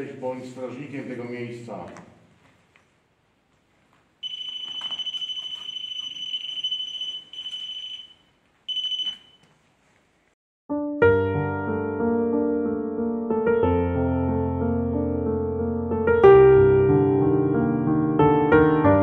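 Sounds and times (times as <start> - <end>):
high electronic alarm tone: 4.2 - 9.4
piano music: 10.7 - 19.0.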